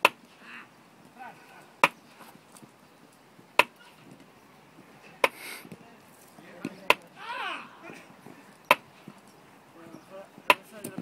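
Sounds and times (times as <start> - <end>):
faint shouts of players: 7.1 - 8.1.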